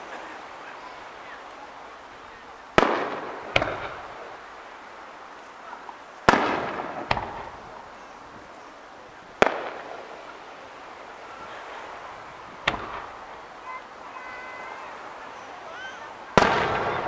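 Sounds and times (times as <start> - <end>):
fireworks bangs with rolling echo: 2.2 - 4.8, 6.2 - 8.5, 9.2 - 17.0.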